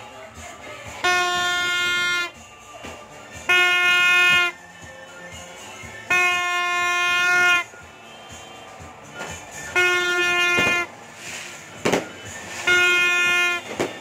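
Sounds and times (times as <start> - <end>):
horn blasts: 1.0 - 2.5, 3.3 - 4.8, 6.0 - 14.0.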